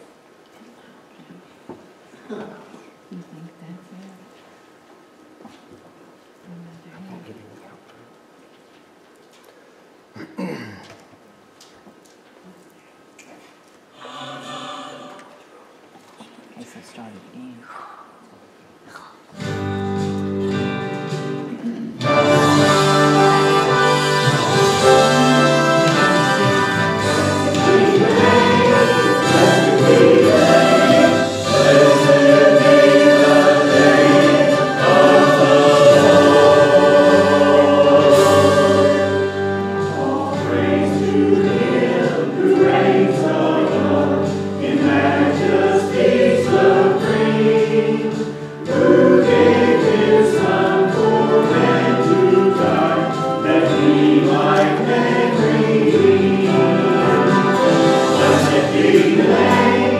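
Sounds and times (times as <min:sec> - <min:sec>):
choir singing: 0:14.0 - 0:15.4, 0:22.0 - 0:59.9.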